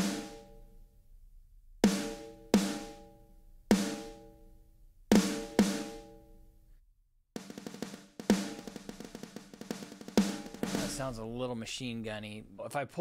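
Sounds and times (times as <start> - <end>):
snare drum hits: 0.0 - 0.4, 7.4 - 11.1.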